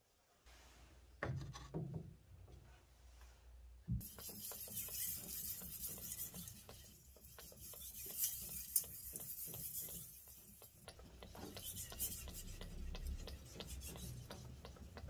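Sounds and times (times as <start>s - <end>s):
knife scraping on whetstone: 4.0s - 10.4s.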